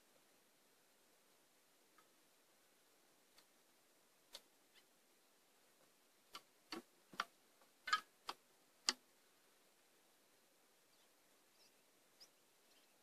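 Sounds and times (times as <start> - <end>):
sharp clicks and light knocks: 5.8 - 9.0.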